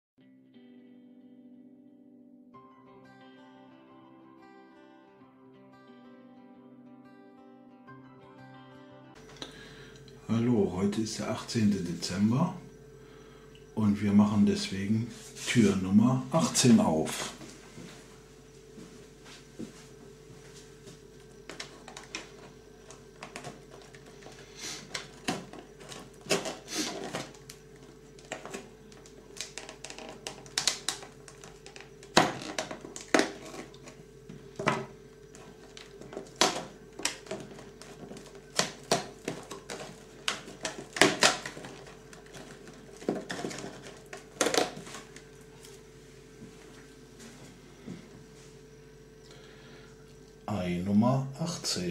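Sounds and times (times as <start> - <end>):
cardboard clicks and rustles: 21.5 - 45.8.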